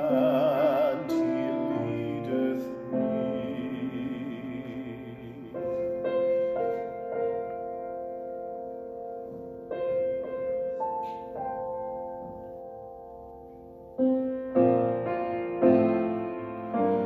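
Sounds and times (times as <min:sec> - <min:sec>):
slow grand piano chords: 0:00.0 - 0:17.0.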